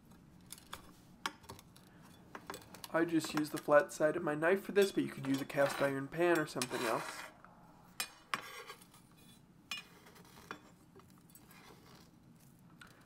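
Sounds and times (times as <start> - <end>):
faint scraping: 5.5 - 7.5.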